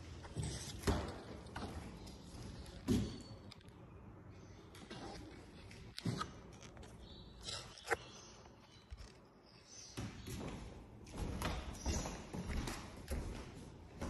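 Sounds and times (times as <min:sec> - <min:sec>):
footsteps on timber floor: 0:10.0 - 0:14.0.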